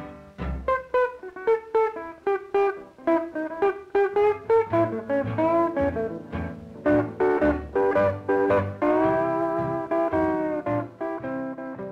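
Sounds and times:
quick plucked single notes: 0:00.0 - 0:11.9
low bass line: 0:04.5 - 0:11.3.

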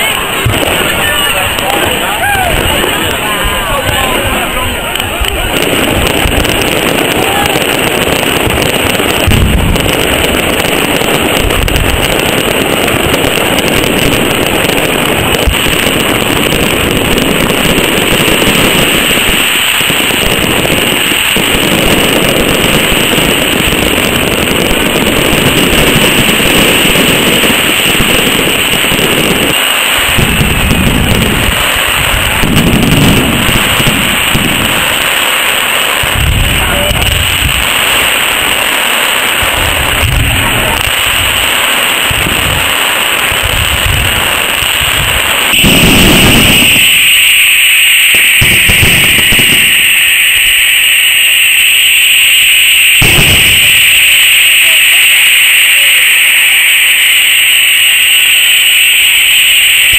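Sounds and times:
low firework booms: 0:00.0 - 0:47.3, 0:48.1 - 0:55.0
fireworks crackling and banging: 0:00.0 - 0:59.9.

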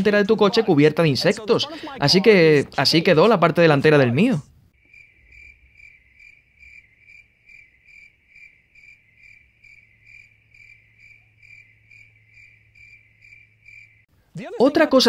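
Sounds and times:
cricket chirping: 0:04.7 - 0:14.1.

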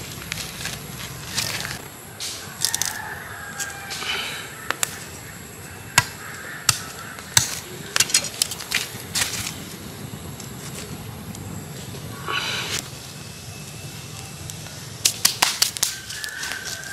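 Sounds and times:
wood fire crackling: 0:00.0 - 0:02.9, 0:04.7 - 0:16.9
sharp pops and cracks: 0:14.4 - 0:16.8.

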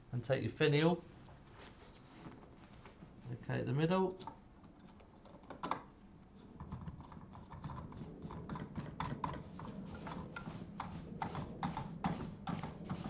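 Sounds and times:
plastic and fabric rustling: 0:01.1 - 0:03.4.

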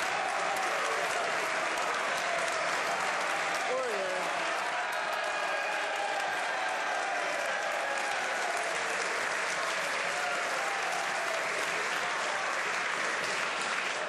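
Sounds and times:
people applauding: 0:00.0 - 0:14.0.

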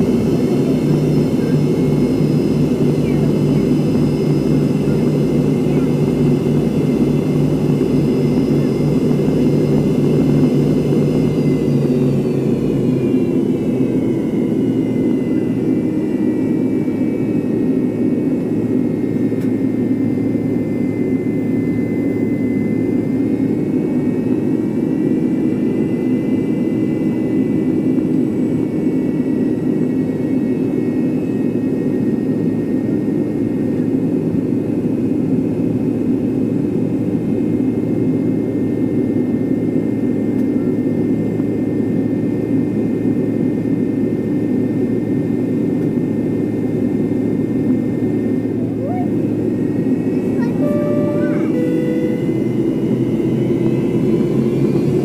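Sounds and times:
low engine rumble: 0:00.0 - 0:16.2
high jet engine whine: 0:00.0 - 0:55.0.

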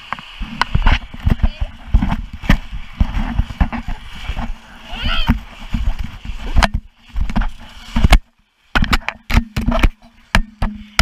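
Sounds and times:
sharp knocks and thumps: 0:05.2 - 0:11.0.

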